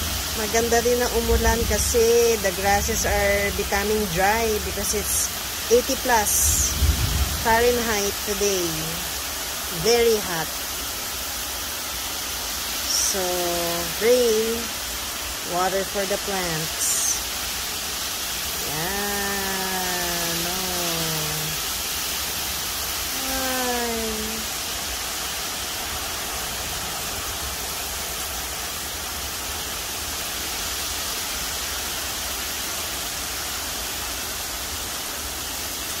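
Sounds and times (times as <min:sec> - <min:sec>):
heavy rain falling: 0:00.0 - 0:36.0.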